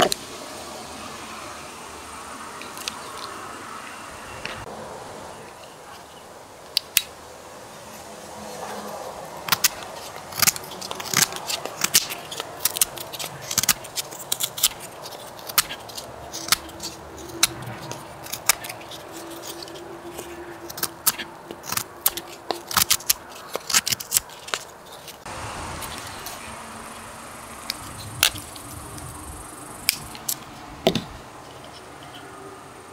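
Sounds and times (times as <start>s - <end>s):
knife whittling wood: 8.5s - 26.5s.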